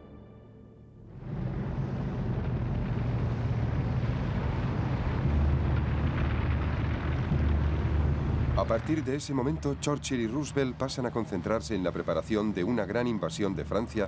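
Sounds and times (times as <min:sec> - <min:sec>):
rushing noise: 0:01.0 - 0:12.0
heavy truck engines rumbling: 0:01.1 - 0:14.0.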